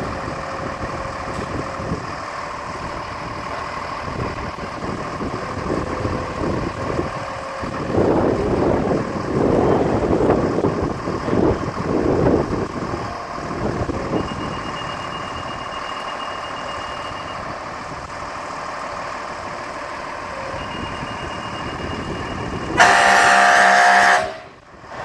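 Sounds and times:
wind gusting on microphone: 0.0s - 15.8s, 16.7s - 23.4s
fire truck engine running: 0.0s - 25.0s
air horn blast: 22.7s - 24.6s.

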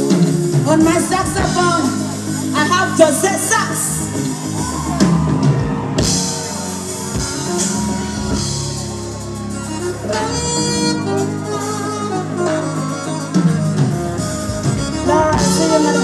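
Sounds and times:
drum kit: 0.0s - 16.0s
electric bass guitar: 0.0s - 16.0s
keyboard: 0.0s - 16.0s
saxophone solo: 3.9s - 16.0s.

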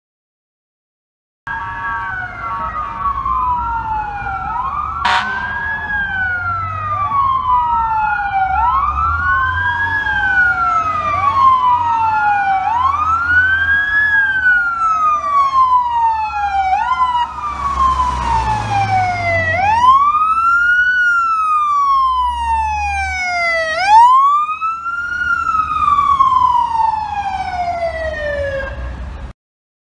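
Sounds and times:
low rumble of truck engines: 1.5s - 29.3s
wail sirens rising and falling: 1.5s - 29.3s.

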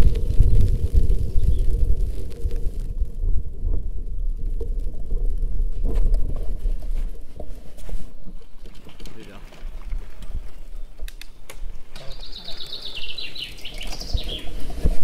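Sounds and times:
wind on microphone: 0.0s - 8.9s, 9.6s - 15.0s
bicycle rolling rumble: 0.0s - 15.0s
bicycle clicks and rattles: 8.2s - 12.1s.

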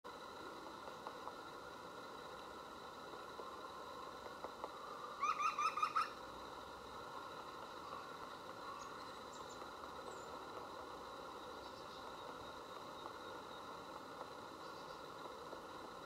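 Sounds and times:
woodpecker laughing call: 5.2s - 6.2s.

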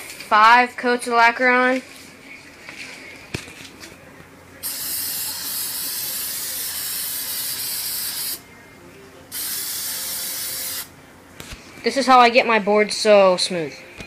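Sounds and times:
aerosol can spraying: 4.6s - 8.4s, 9.3s - 10.9s.

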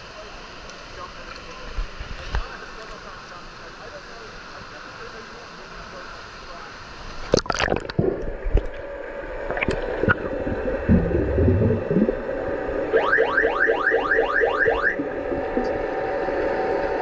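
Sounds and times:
muffled underwater gurgling: 7.3s - 17.0s
underwater knocks: 9.5s - 12.2s
electronic siren chirps: 12.9s - 15.7s.

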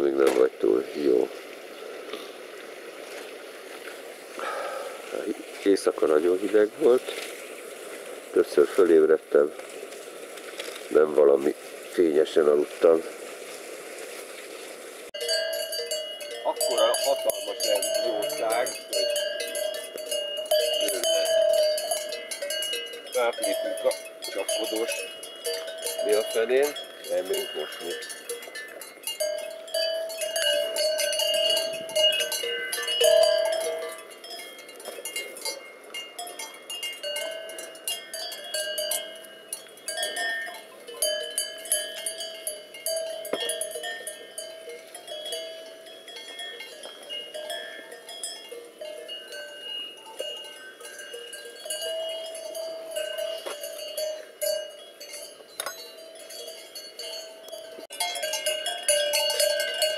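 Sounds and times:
cowbells clanking: 4.4s - 7.2s, 15.1s - 59.9s.

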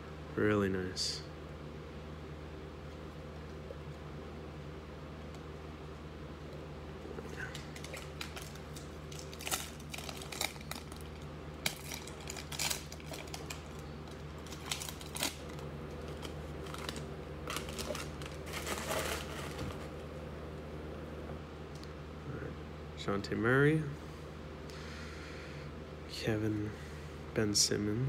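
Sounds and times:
foil wrapper crinkling and tearing: 7.3s - 19.9s
cards rustling: 7.4s - 20.0s.

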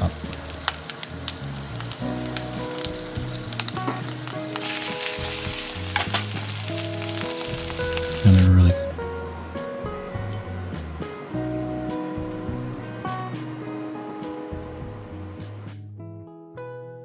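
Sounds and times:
food frying in hot oil: 0.0s - 8.6s.

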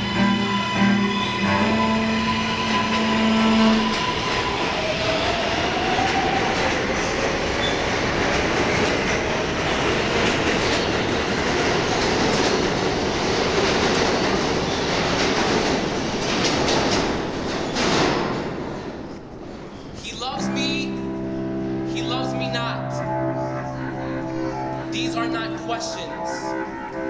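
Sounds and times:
train wheels rumbling on rails: 0.0s - 20.3s
held musical notes: 20.2s - 27.0s.

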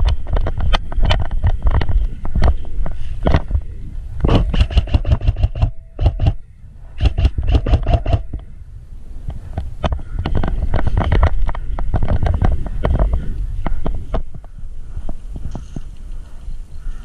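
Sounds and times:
knocks and rustling: 0.0s - 6.4s, 7.0s - 8.5s, 9.2s - 16.0s
wind rumble: 0.0s - 17.0s
airsoft rifle rapid clicking: 4.3s - 6.4s, 7.0s - 8.4s.

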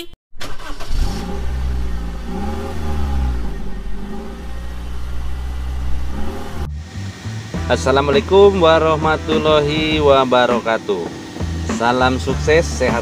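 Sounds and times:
engine rumbling and revving: 0.4s - 10.3s.

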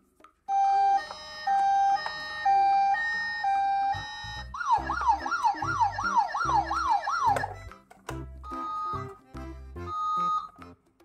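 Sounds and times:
toy electronic siren: 0.5s - 7.6s.

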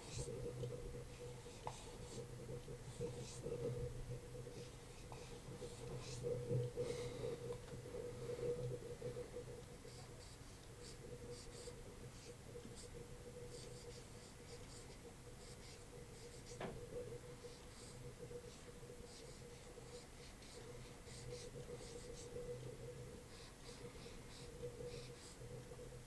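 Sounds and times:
low electrical hum: 0.0s - 26.0s
marker squeaking on a whiteboard: 23.3s - 25.4s.

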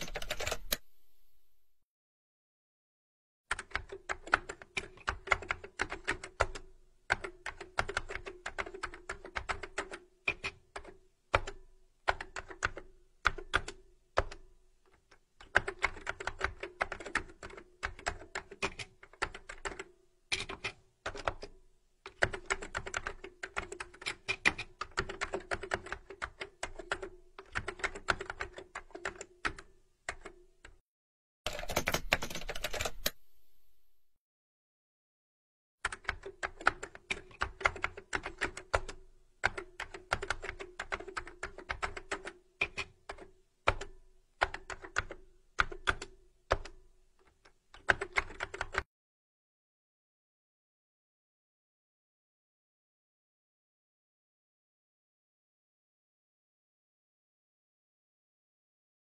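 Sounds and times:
keyboard key clicks: 0.0s - 1.3s, 31.5s - 33.7s.

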